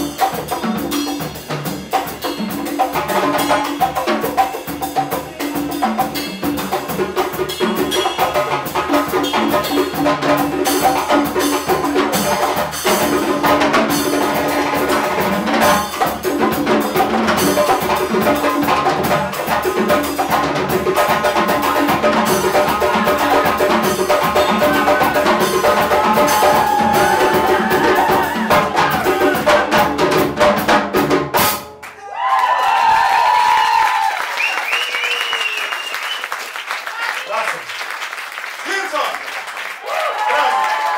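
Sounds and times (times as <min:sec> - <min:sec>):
drums and cymbals playing: 0:00.0 - 0:31.8
applause and cheering: 0:25.9 - 0:29.5, 0:31.7 - 0:40.9.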